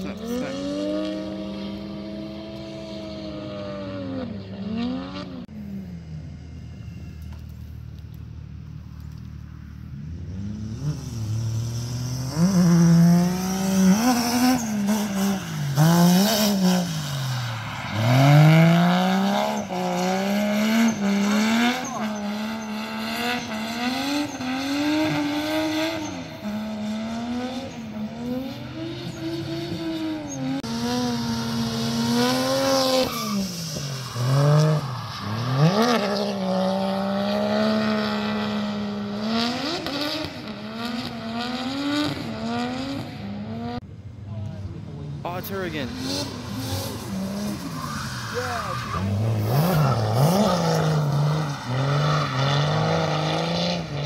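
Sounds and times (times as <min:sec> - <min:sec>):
car engines revving: 0:00.0 - 0:54.0
tyre squeal: 0:16.9 - 0:26.8, 0:32.4 - 0:36.6, 0:46.1 - 0:53.4.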